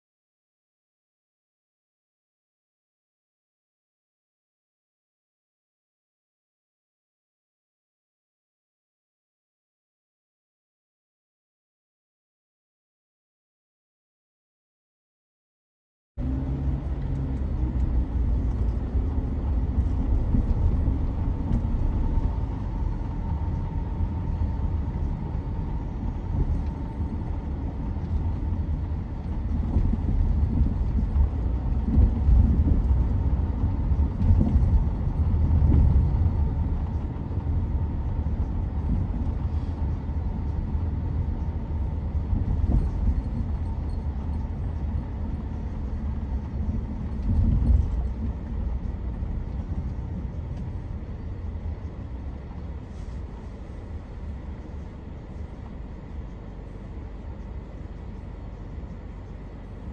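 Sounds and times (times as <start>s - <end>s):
car interior road rumble: 16.2s - 59.9s.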